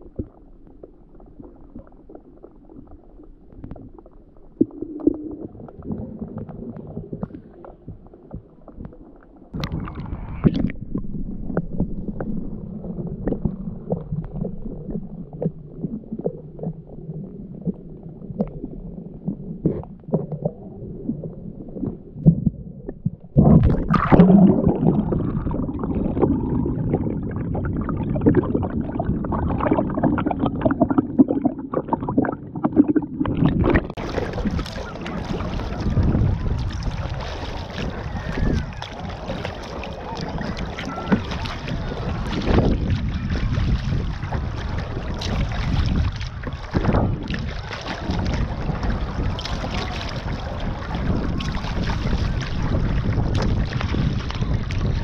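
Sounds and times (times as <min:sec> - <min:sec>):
small underwater knocks and clicks: 0:00.0 - 0:12.4
underwater rumbling swish: 0:00.0 - 0:55.0.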